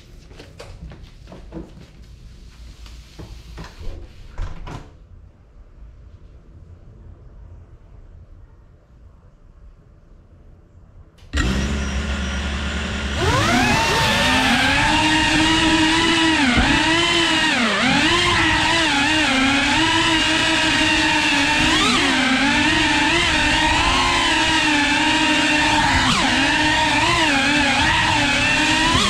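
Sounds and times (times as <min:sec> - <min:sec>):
drone motors whining: 0:11.2 - 0:29.0.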